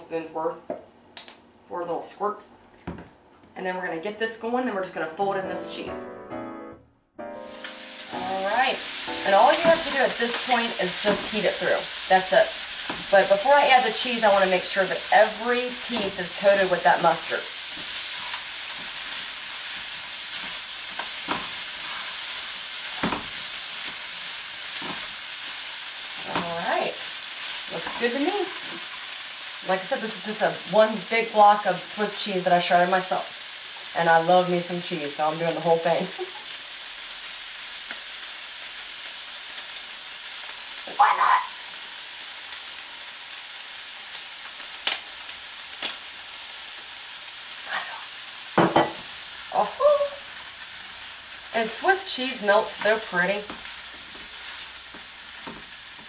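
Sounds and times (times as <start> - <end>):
meat sizzling in a skillet: 7.4 - 56.0.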